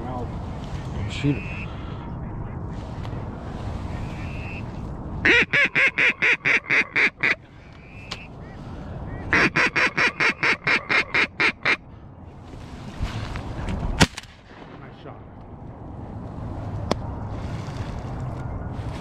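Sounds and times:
duck quacking: 8.1 - 11.8.

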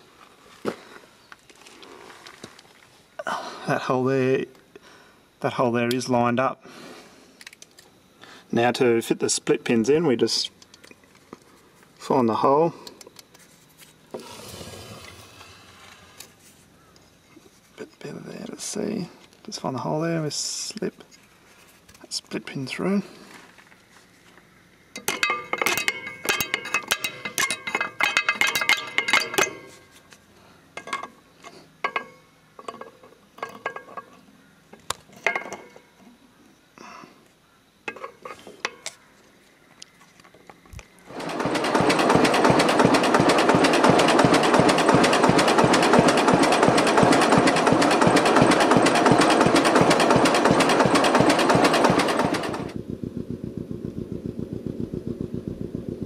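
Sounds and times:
tractor engine running: 41.1 - 56.0.

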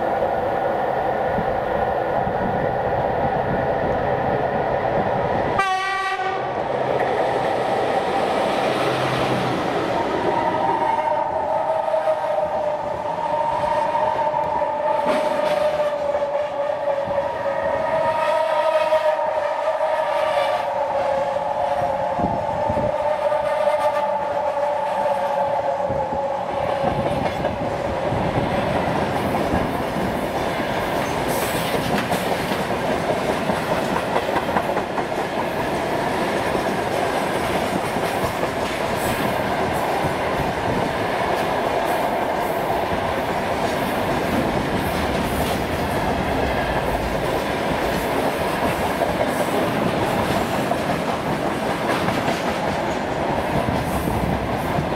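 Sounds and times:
train wheels clattering over rail joints: 26.8 - 41.9, 43.0 - 54.9.

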